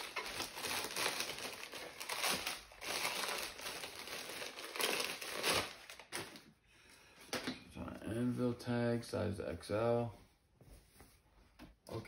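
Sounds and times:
wrapping paper crinkling: 0.0s - 6.5s.

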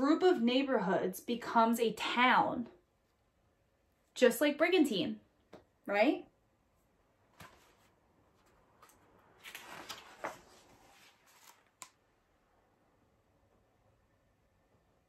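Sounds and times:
book page rustling: 7.3s - 12.0s.

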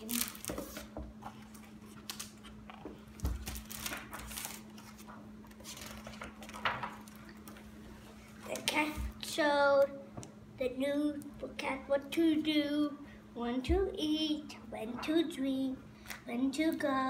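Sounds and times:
paper pages rustling: 0.0s - 7.6s
faint steady hum: 0.0s - 17.0s.

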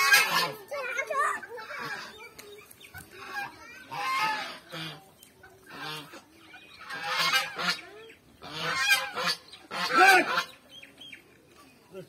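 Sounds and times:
fowl calling: 0.0s - 0.6s, 3.2s - 11.2s.

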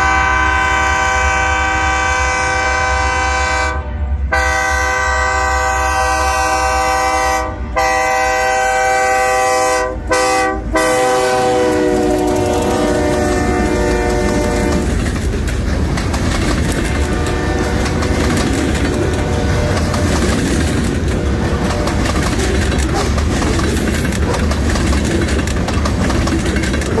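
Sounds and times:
train wheels rumbling on rails: 0.0s - 27.0s
wheels clicking and clacking: 11.4s - 27.0s.

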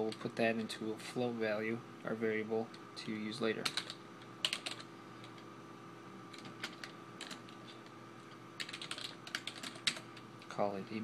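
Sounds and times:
faint steady hum: 0.0s - 11.0s
typing on computer keyboard: 3.6s - 4.9s, 6.3s - 7.4s, 8.6s - 10.0s.

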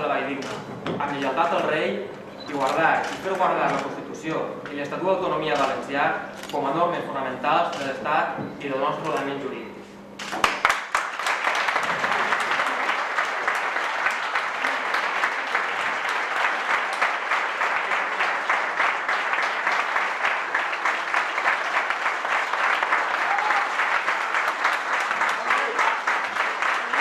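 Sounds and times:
crowd applause: 10.4s - 27.0s.

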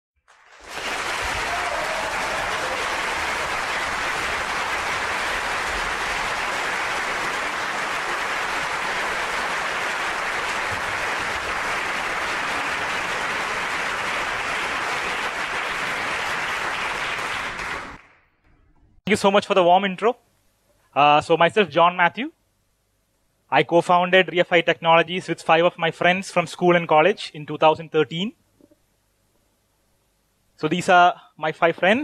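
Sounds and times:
audience applauding: 0.2s - 18.3s.

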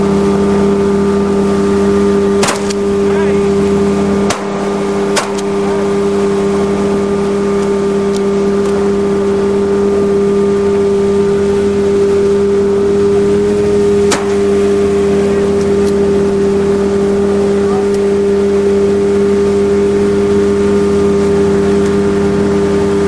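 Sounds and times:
speedboat engine running: 0.0s - 23.0s
shotgun shots: 2.4s - 2.9s, 4.2s - 5.7s, 14.1s - 14.5s.

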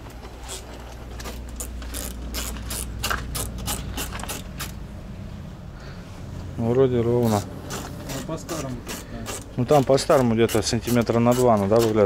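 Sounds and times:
low steady hum: 0.0s - 10.1s
ratchet wrench clicking: 1.6s - 4.8s, 7.3s - 12.0s.

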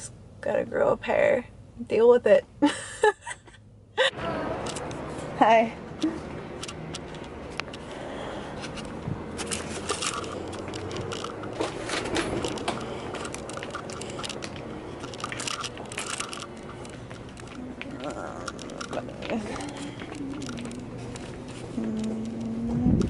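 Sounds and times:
camera handling noise: 8.6s - 17.6s.

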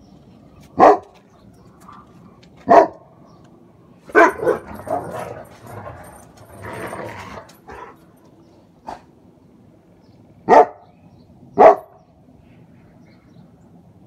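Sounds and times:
dog barking and yipping: 0.8s - 1.2s, 2.6s - 3.0s, 4.1s - 8.0s, 10.5s - 10.8s, 11.6s - 12.0s.

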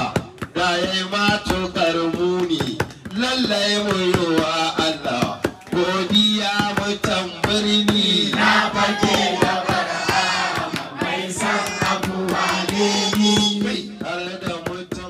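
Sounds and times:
voices singing: 5.7s - 14.4s.

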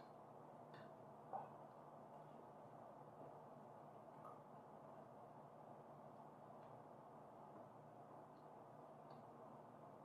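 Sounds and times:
faint low hum: 0.0s - 10.0s
faint click: 8.4s - 9.3s.

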